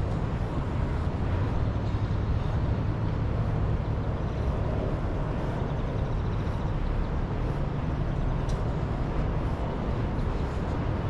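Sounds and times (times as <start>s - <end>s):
city traffic rumble: 0.0s - 11.0s
faint click: 8.4s - 8.6s.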